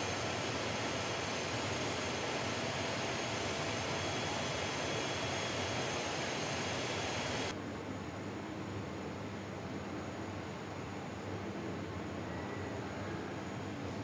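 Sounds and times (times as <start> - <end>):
faint high whining tones: 0.0 - 7.5
machine hum: 0.0 - 7.5.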